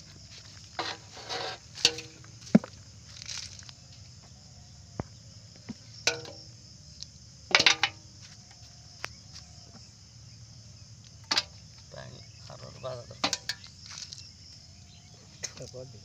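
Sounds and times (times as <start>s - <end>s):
crickets chirring: 0.0s - 16.0s.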